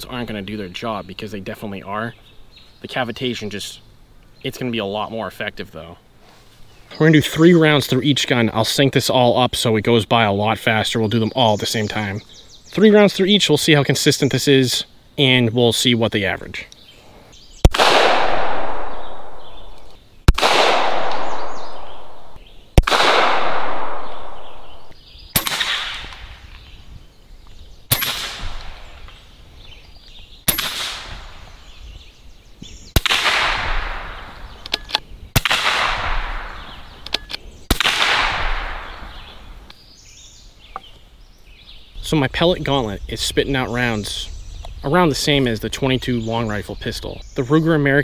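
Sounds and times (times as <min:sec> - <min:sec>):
rifle shots with echo: 0:17.6 - 0:26.4, 0:27.9 - 0:28.8, 0:30.5 - 0:31.4, 0:33.0 - 0:34.6, 0:35.4 - 0:36.9, 0:37.7 - 0:39.4.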